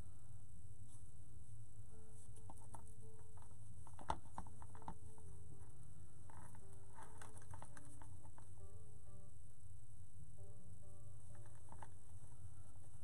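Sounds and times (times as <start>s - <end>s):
hands knotting fabric clicks and rustles: 2.2s - 5.3s, 6.2s - 8.5s, 11.3s - 12.2s.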